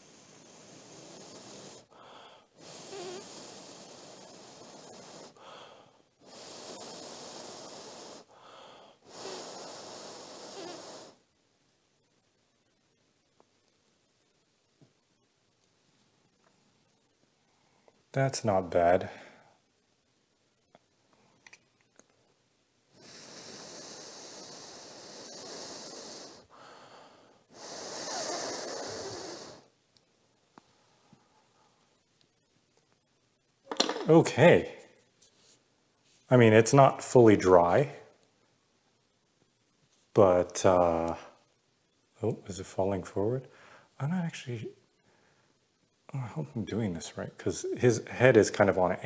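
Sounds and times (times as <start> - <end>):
person blowing breathily: 0.0 - 11.2, 23.0 - 29.7.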